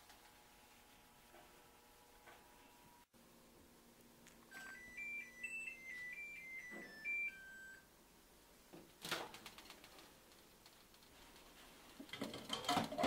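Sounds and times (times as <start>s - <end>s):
microwave chime beeping tune: 4.5s - 7.9s.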